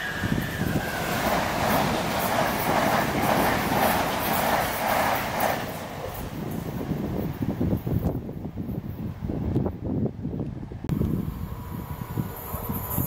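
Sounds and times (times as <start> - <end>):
train passing on rails: 0.0 - 13.0.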